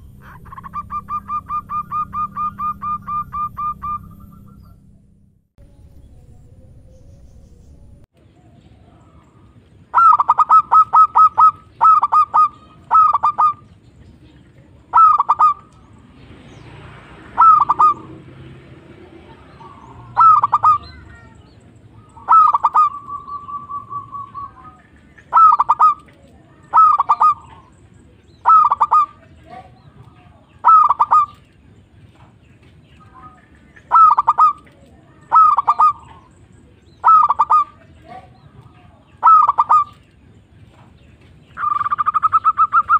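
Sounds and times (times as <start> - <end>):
dove cooing: 0.0 - 4.7, 8.4 - 13.8, 14.6 - 15.9, 17.3 - 18.2, 19.2 - 31.4, 33.1 - 40.0, 41.6 - 42.9.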